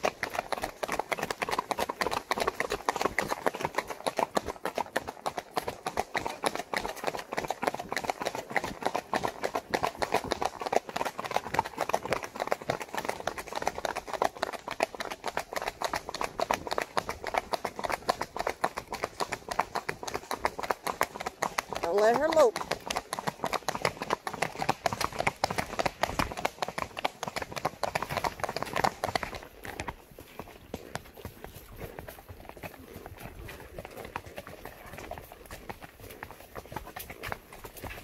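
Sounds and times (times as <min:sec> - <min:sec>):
horse hoofbeats: 0:00.0 - 0:38.0.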